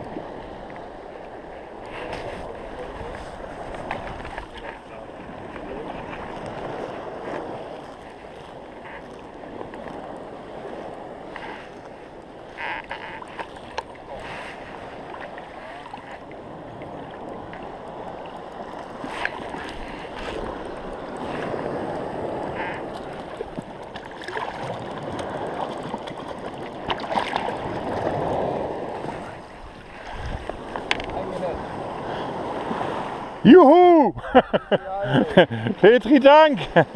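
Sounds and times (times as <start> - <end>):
sea water lapping: 0.0 - 36.9
small splashes: 22.9 - 28.4.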